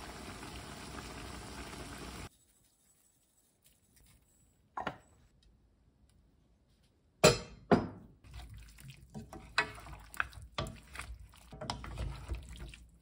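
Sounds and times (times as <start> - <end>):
wooden spoons scraping a wok: 8.3 - 13.0.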